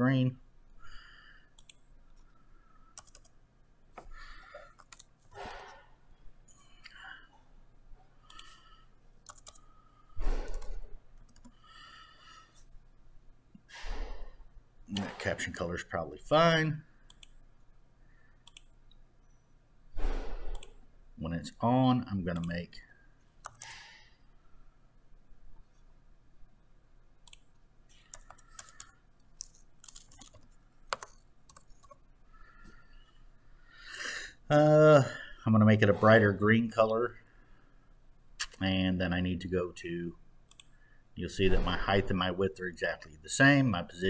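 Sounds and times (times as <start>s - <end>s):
keyboard keys clicking: 3.0s - 3.3s, 4.8s - 5.3s, 9.2s - 9.6s, 27.3s - 32.0s.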